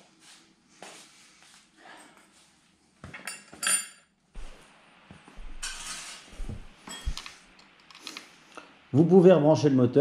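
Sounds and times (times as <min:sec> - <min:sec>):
metal scrape: 0:05.6 - 0:07.2.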